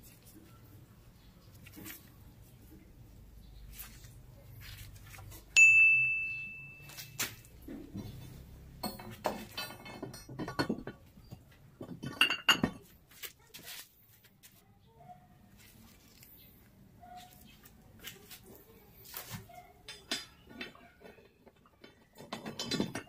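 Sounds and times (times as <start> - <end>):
knocks of plates and collars: 7.7 - 12.9, 19.9 - 23.0
metal weight plates clinking: 8.8 - 12.8.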